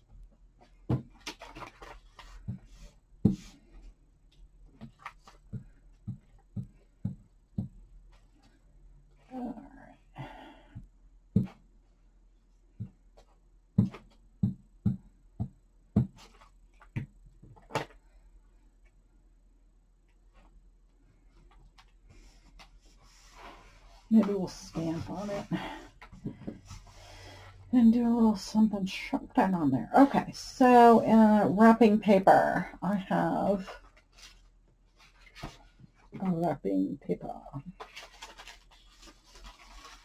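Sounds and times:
soft paper rustle: 1.2 - 3.9, 33.6 - 36.3, 37.6 - 40.0.

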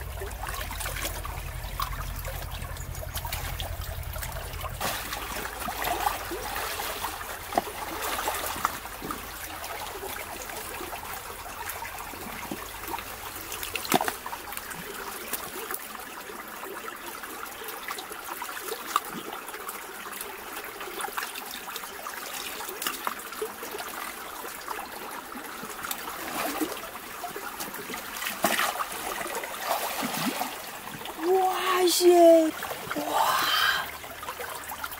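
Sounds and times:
knocks and splashes in water: 0.0 - 15.8, 25.7 - 34.9
stream trickling over rocks: 0.0 - 34.9.

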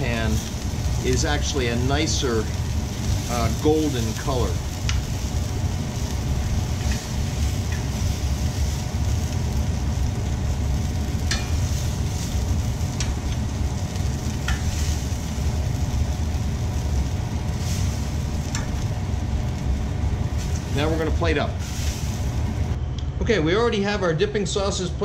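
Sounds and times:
oil sizzling in pans: 0.0 - 22.8
steady low hum: 0.0 - 25.0
metal tongs clicking on pan: 11.2 - 11.6, 14.5 - 14.8.

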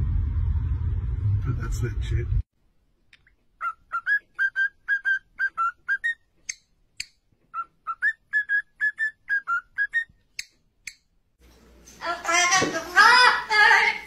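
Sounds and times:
cockatiel whistling a tune: 3.6 - 6.3, 7.5 - 10.2.

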